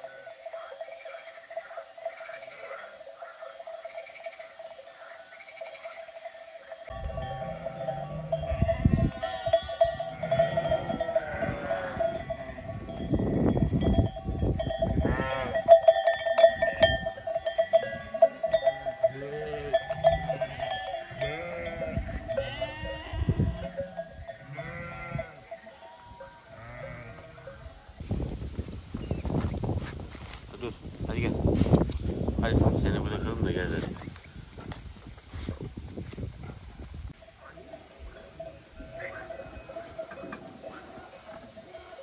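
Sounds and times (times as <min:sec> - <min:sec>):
sheep bells jangling: 0:00.0 - 0:28.0, 0:28.9 - 0:42.0
sheep bleating: 0:07.4 - 0:12.7, 0:19.0 - 0:27.6.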